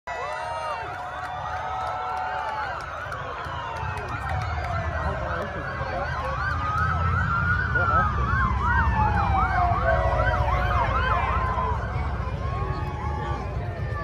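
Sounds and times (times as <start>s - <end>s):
siren yelping up and down: 2.8s - 14.0s.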